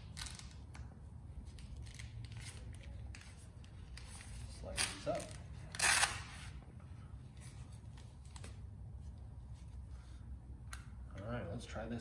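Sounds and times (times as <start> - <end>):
velcro strap rip: 0.0 - 6.6
low steady hum: 0.0 - 12.0.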